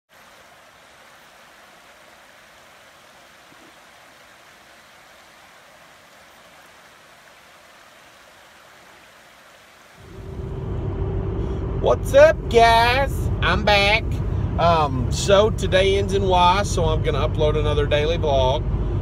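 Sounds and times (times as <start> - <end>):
creek running over rocks: 0.1 - 10.2.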